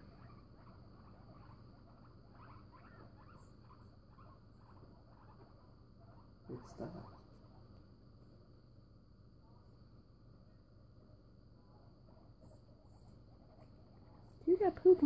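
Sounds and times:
guinea pig squeaks: 0.0s - 7.7s
low steady hum: 0.0s - 15.0s.

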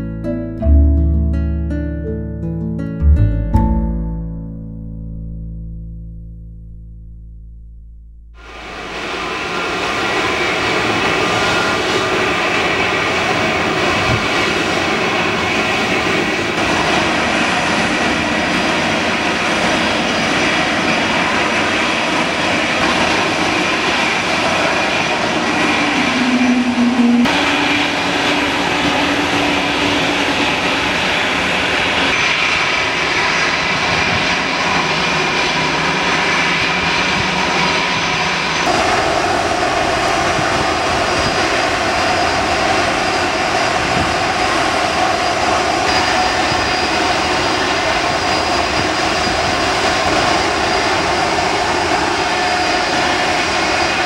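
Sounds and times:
jet engines idling: 8.4s - 54.0s.

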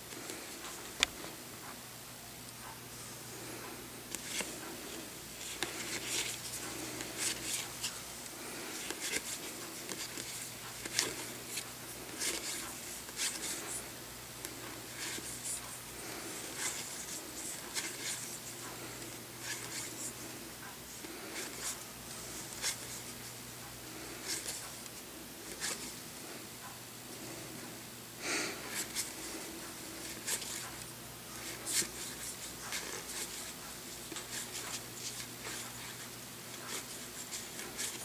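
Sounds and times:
low steady hum: 0.0s - 38.0s
cards sliding and flicking: 4.1s - 4.7s, 5.4s - 13.8s, 14.4s - 15.4s, 16.4s - 18.3s, 19.0s - 20.0s, 30.0s - 30.7s, 31.4s - 36.0s, 36.6s - 38.0s.

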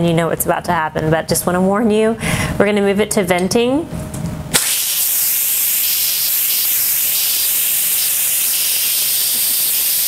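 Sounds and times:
pressure cooker steam hissing: 4.6s - 10.0s.

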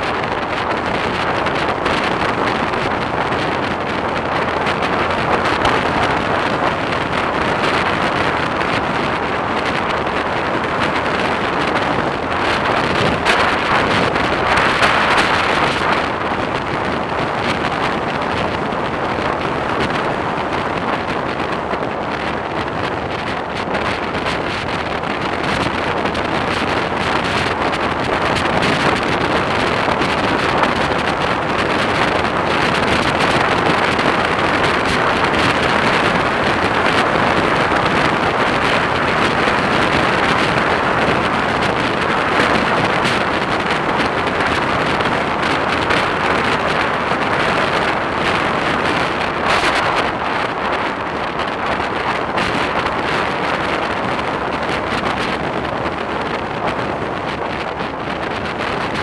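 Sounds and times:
wind rushing on microphone: 0.0s - 59.0s.

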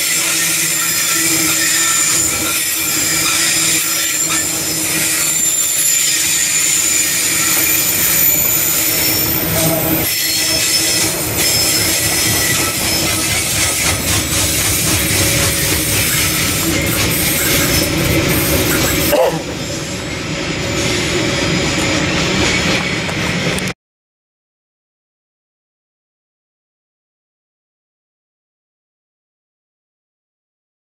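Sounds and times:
high-pitched wheel squeal: 0.0s - 20.1s
wagons rolling on rails: 0.0s - 23.7s.

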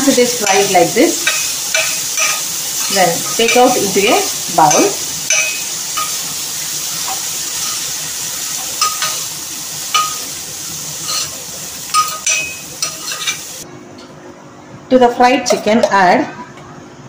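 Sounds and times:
chicken sizzling in oil: 0.0s - 13.6s
spoon clinking against pan: 0.4s - 3.8s, 4.6s - 6.2s, 8.7s - 9.2s, 9.9s - 10.2s, 11.9s - 13.4s.

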